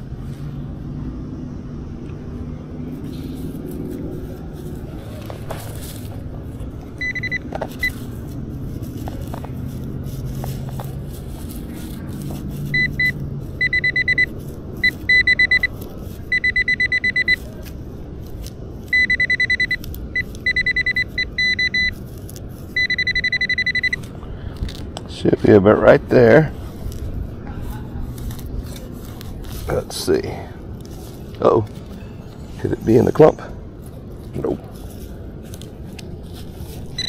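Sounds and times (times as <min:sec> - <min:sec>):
digging rustle: 0:02.8 - 0:37.0
pinpointer beeping: 0:07.0 - 0:08.0, 0:12.7 - 0:17.4, 0:18.9 - 0:22.0, 0:22.8 - 0:24.1.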